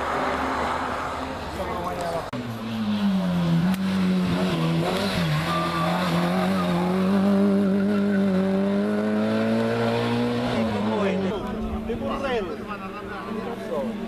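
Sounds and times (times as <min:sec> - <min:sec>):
car engine revving hard: 0:03.5 - 0:11.2.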